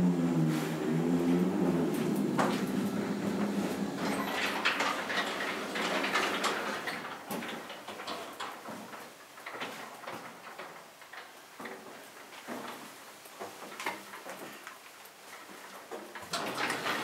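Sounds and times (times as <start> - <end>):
elevator drive hum: 0.0 - 7.2
elevator car and doors rattling: 0.0 - 11.2, 16.2 - 17.0.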